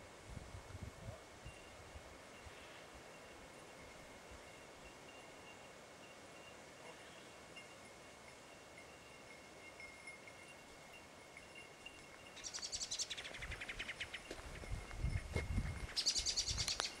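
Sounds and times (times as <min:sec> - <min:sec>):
bird trilling: 0:15.9 - 0:17.0.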